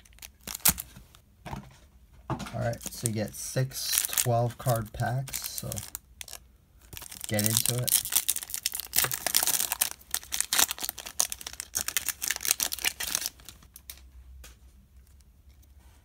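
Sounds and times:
foil wrapper crinkling: 0:00.0 - 0:01.1, 0:02.7 - 0:14.0.

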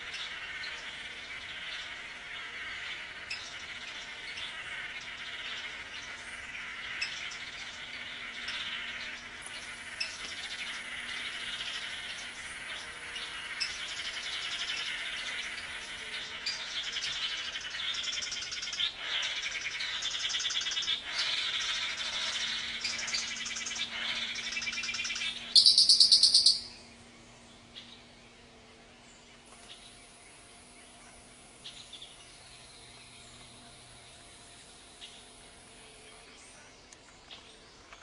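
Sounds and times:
loud rapid buzzing bird call: 0:00.0 - 0:27.1
birds buzzy trilling calls: 0:00.0 - 0:38.0.

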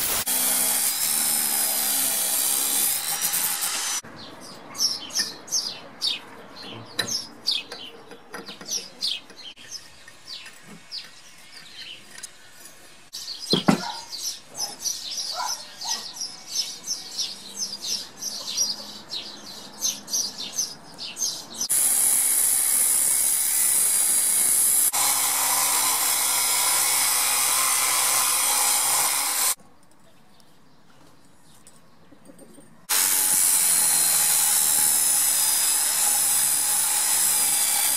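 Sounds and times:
angle grinder cutting steel pipe: 0:00.0 - 0:04.0, 0:21.7 - 0:29.6, 0:32.9 - 0:37.9
birds chirping: 0:04.0 - 0:21.7.

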